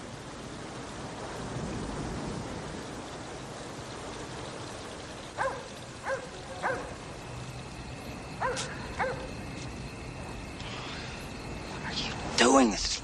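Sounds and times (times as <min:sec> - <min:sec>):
background hiss: 0:00.0 - 0:13.0
dog barking: 0:05.4 - 0:07.0, 0:08.4 - 0:09.3.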